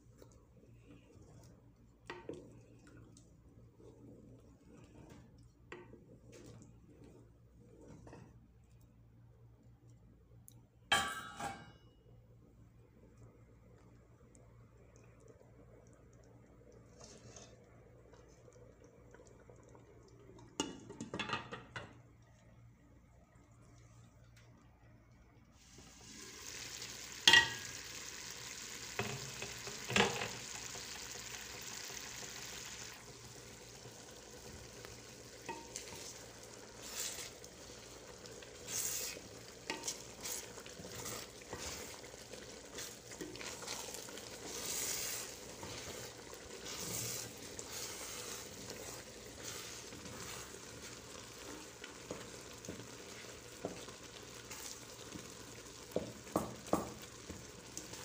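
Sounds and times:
food simmering sizzle: 12.9s - 58.0s
wooden spoon scraping pot: 34.5s - 58.0s.

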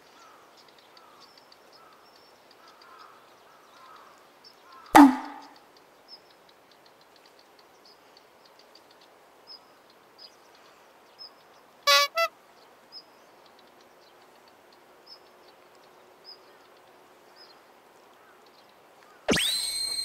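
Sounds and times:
short loud honking toots: 5.0s - 5.6s
faint high chirps: 19.3s - 20.0s.

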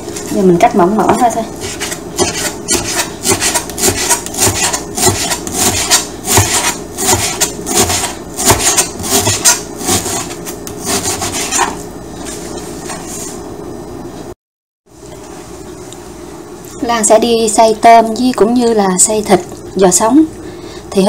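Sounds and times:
knife slicing frozen meat: 1.6s - 11.8s.

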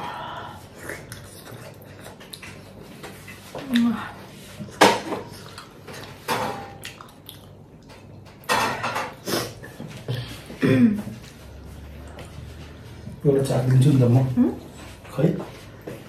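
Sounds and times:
dishes and cutlery clinking: 7.8s - 10.0s.

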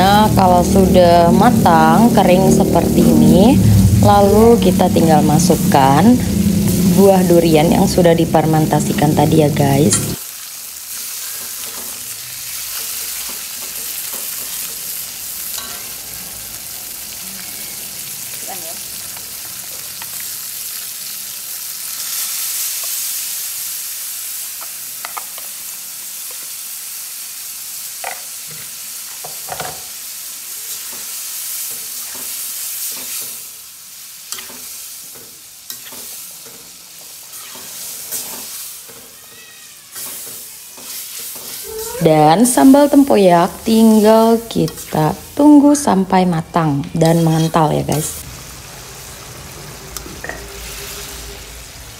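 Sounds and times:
paste sizzling in a wok: 10.1s - 46.4s, 47.0s - 51.9s.

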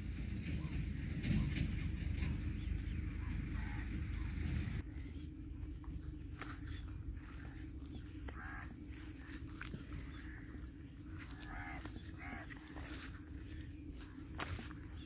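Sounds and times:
steady low hum: 0.0s - 15.0s
crows cawing: 3.2s - 4.4s, 6.4s - 15.0s.

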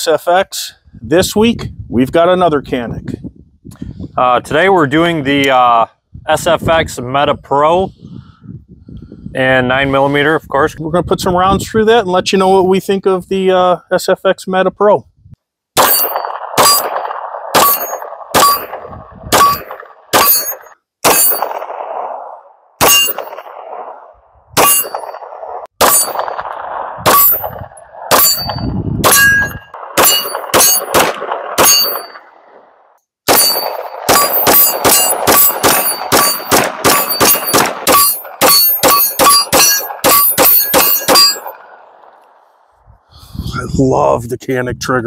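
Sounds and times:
pistol shots: 15.8s - 24.0s, 24.6s - 32.7s, 33.3s - 42.2s
steel plates ringing: 17.6s - 18.8s, 19.4s - 21.5s, 22.8s - 23.3s, 24.6s - 25.2s, 28.1s - 30.9s, 31.6s - 32.3s, 33.3s - 41.6s.

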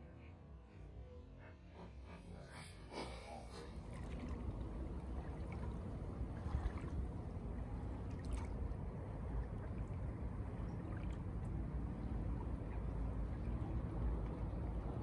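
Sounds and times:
low rumble: 0.0s - 15.0s
small waves lapping on shore: 2.9s - 14.7s.

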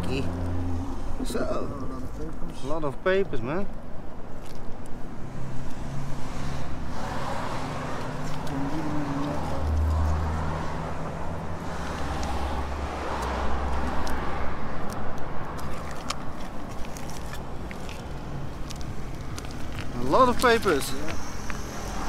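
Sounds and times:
cars passing: 0.0s - 22.0s
low engine hum: 5.0s - 22.0s.

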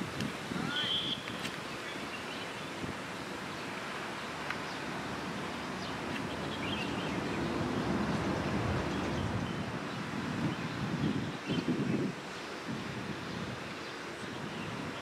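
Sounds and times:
wind on microphone: 0.0s - 4.2s, 4.8s - 15.0s
faint distant high sounds: 0.0s - 7.2s.

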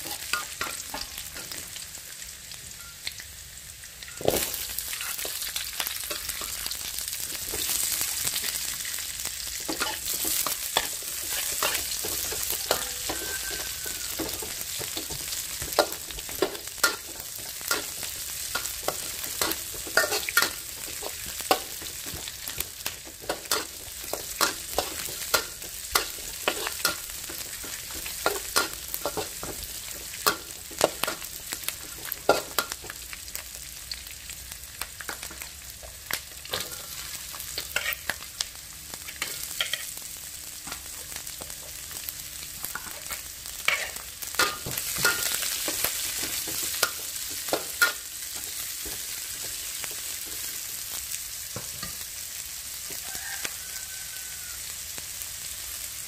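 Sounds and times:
vegetables sizzling in a wok: 0.0s - 56.0s
steel spatula scraping a pan: 9.7s - 32.8s, 36.5s - 38.2s, 39.1s - 39.9s, 42.7s - 49.0s.

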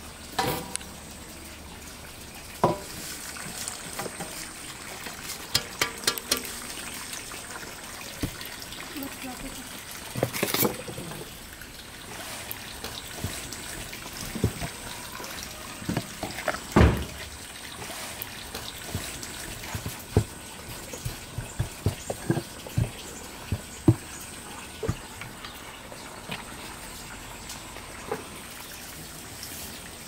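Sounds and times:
dough thumping on wooden board: 18.9s - 24.1s.

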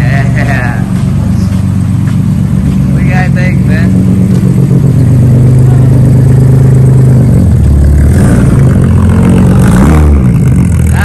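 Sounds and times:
car engine running loud: 0.0s - 11.0s.

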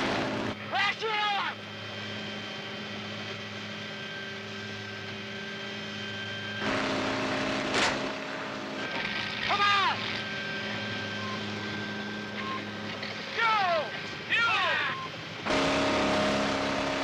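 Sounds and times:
helicopter engine and rotor: 0.0s - 17.0s
helicopter whoosh: 15.2s - 17.0s.

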